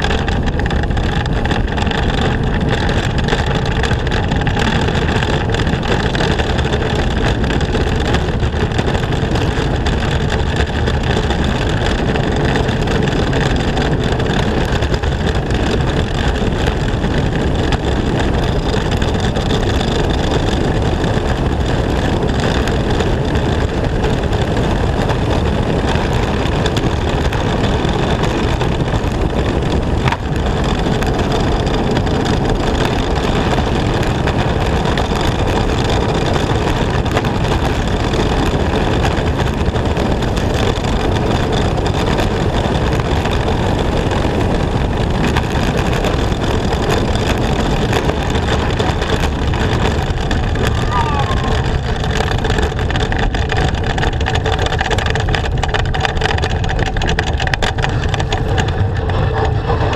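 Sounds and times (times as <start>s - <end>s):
bobsled runners rumbling on ice: 0.0s - 59.9s
rushing air: 46.3s - 53.3s.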